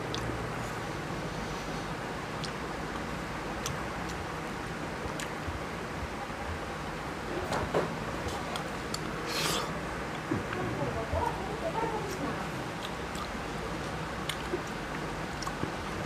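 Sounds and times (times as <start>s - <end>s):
eating noise: 8.5s - 10.3s.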